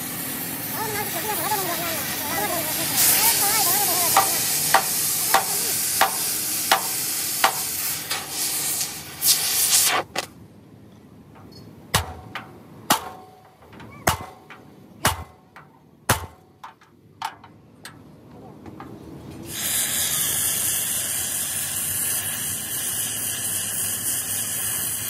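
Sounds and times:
loud steady hiss: 0:00.0 - 0:10.4, 0:19.3 - 0:25.0
hammer blows on metal: 0:01.4 - 0:08.4, 0:11.4 - 0:16.9.

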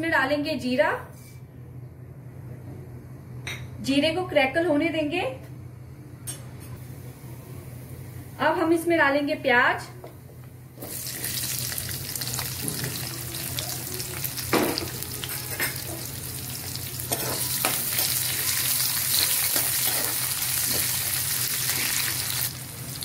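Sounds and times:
onions sizzling in hot oil: 0:10.8 - 0:23.0.

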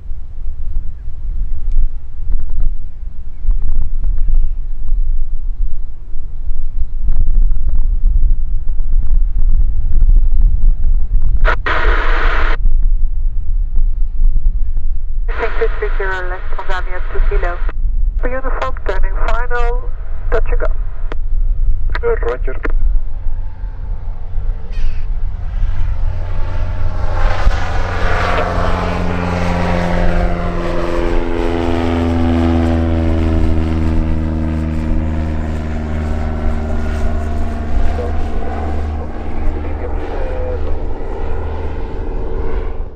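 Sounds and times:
propeller plane engine droning: 0:00.0 - 0:42.9
wind buffeting microphone: 0:00.0 - 0:42.9
radio squelch hiss: 0:11.4 - 0:12.6, 0:15.3 - 0:19.7, 0:20.3 - 0:20.7, 0:22.0 - 0:22.7.

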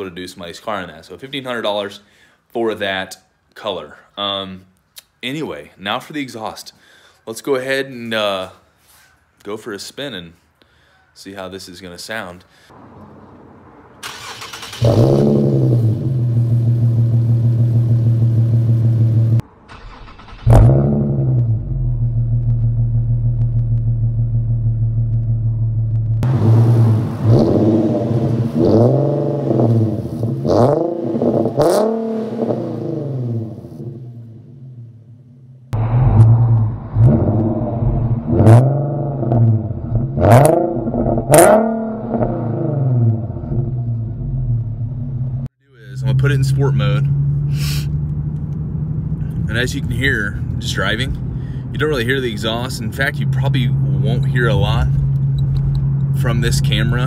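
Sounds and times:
car engine revving and idling: 0:12.8 - 0:19.5, 0:20.2 - 0:35.1, 0:35.7 - 0:57.0
car engine cranking: 0:13.9 - 0:32.6, 0:46.0 - 0:57.0.

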